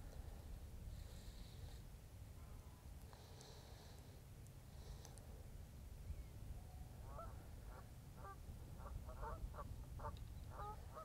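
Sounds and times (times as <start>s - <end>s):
geese honking: 7.1s - 11.0s.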